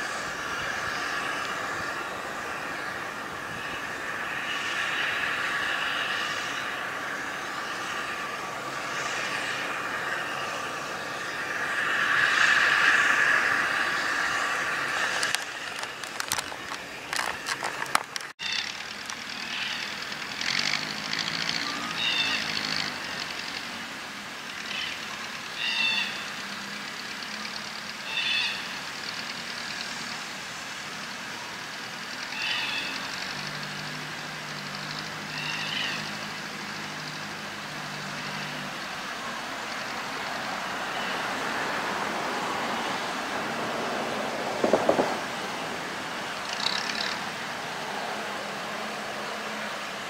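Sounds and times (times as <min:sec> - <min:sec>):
engine running low: 0:00.0 - 0:50.0
scattered knocks: 0:44.6 - 0:45.2.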